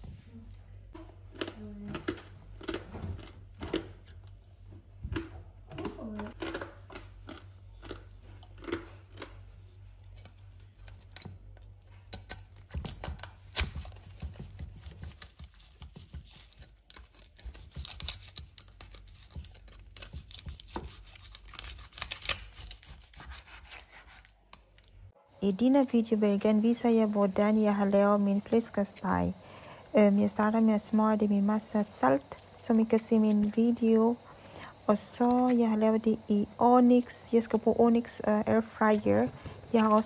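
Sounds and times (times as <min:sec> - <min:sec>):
knife cutting crunchy pork rind: 0:12.1 - 0:24.8.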